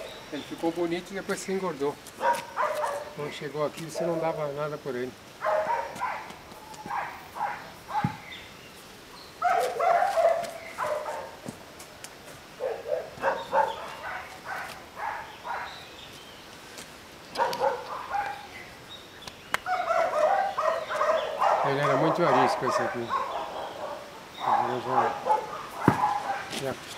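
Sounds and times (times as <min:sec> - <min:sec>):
dog barking: 0:02.2 - 0:03.2, 0:03.9 - 0:04.4, 0:05.4 - 0:08.2, 0:09.4 - 0:11.4, 0:12.6 - 0:15.8, 0:17.4 - 0:18.5, 0:19.7 - 0:26.6.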